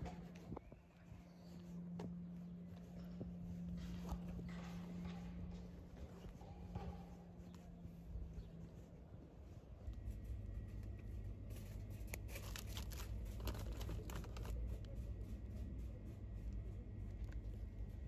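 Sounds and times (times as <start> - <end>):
low hum: 0.0 - 18.0
plastic packaging crinkling: 12.1 - 14.5.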